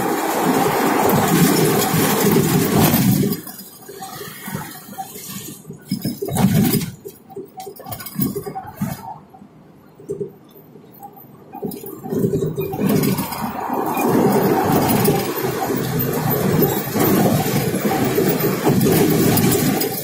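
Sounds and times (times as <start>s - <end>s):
road noise inside vehicle: 0.0s - 20.0s
low rumbles: 11.9s - 19.8s.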